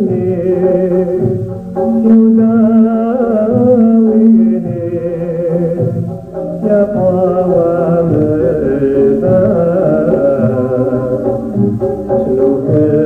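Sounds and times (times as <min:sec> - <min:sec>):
man singing: 0:00.0 - 0:13.0
string orchestra playing: 0:00.0 - 0:13.0.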